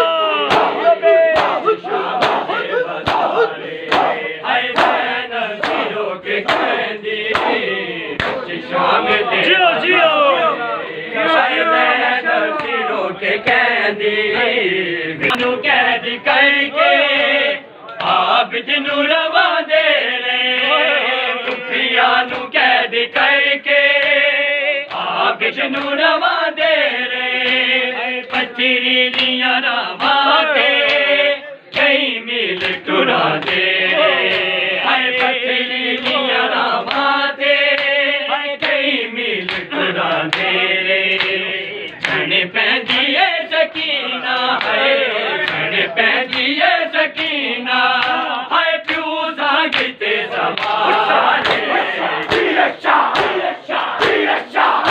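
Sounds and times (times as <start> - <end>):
men chanting in unison: 0.0 - 54.9
hands slapping chests: 0.4 - 8.5, 12.6 - 12.8, 24.8 - 26.0, 27.4 - 29.4, 30.8 - 31.1, 31.7 - 32.0, 32.6 - 33.7, 34.3 - 34.5, 35.2 - 38.0, 38.6 - 38.8, 39.4 - 43.1, 43.7 - 44.8, 45.4 - 47.4, 48.0 - 49.1, 49.7 - 54.9.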